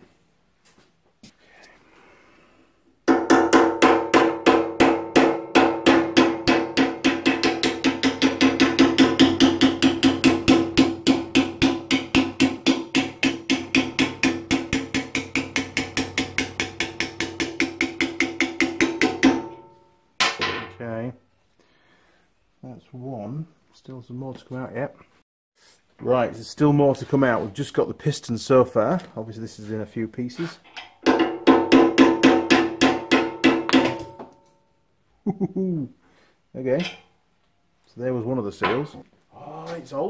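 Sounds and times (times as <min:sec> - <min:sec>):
hammer striking steel punch: 0:03.1 - 0:20.7, 0:31.0 - 0:34.4.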